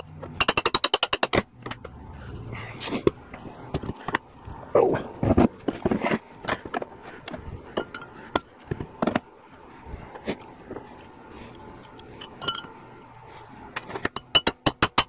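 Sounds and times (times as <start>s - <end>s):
metal parts and tools clinking: 5.2s - 9.2s, 11.8s - 12.8s.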